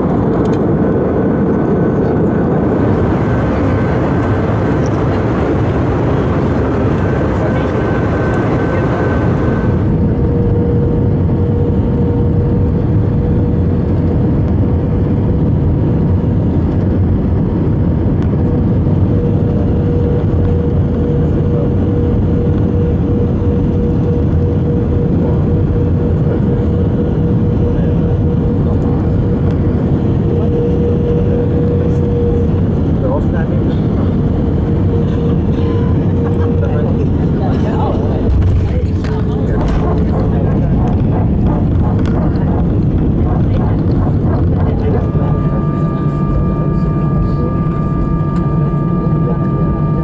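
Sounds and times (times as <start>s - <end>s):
airplane cabin roar: 0.0s - 50.0s
steady tone: 34.1s - 50.0s.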